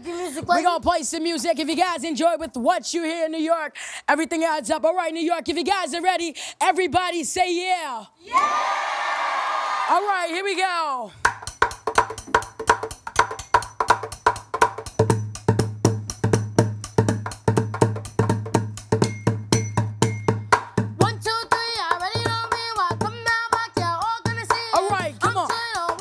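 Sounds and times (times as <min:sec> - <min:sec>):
bucket drumming: 0:11.2 - 0:26.0
person singing: 0:21.0 - 0:26.0.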